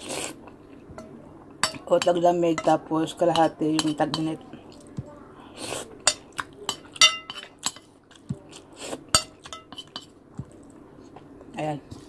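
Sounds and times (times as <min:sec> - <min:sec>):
tableware clinking on plate: 0:06.1 - 0:07.8.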